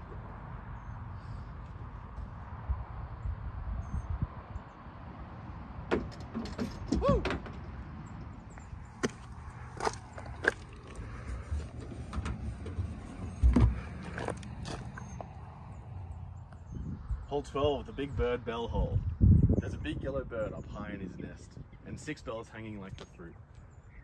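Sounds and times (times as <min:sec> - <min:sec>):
disc striking jangling chains: 0:06.0 - 0:07.1.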